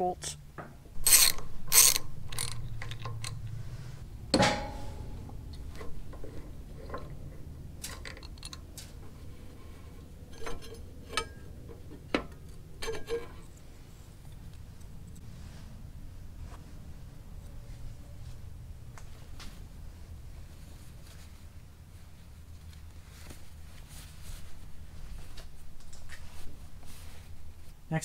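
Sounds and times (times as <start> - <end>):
metal clicks and clinks: 1.0 - 3.4
socket ratchet: 1.0 - 3.4.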